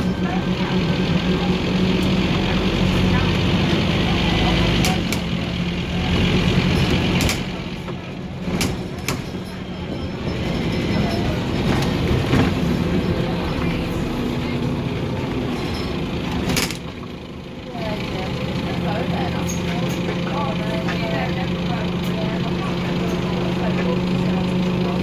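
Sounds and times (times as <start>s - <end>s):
bus diesel engine drone: 0.0s - 25.0s
road noise: 0.0s - 25.0s
rattles and knocks from bus body: 6.1s - 13.7s, 15.2s - 17.1s.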